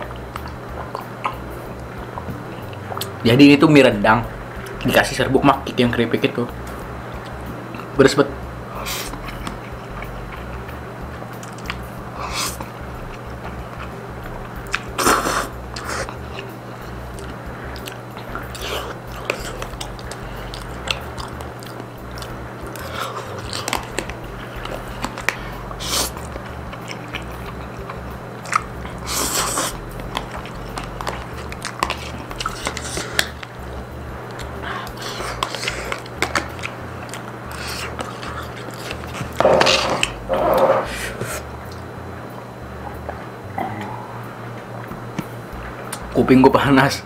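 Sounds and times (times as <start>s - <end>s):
chewing crunchy food: 8.7s - 41.9s.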